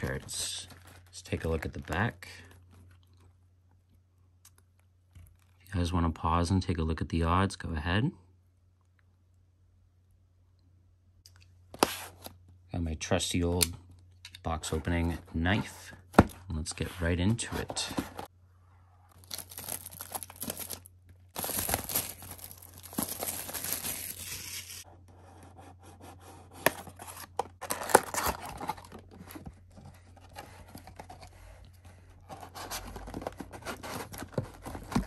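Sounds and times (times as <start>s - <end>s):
plastic and cardboard crinkling: 0.0s - 3.3s, 19.1s - 24.8s, 26.6s - 35.0s.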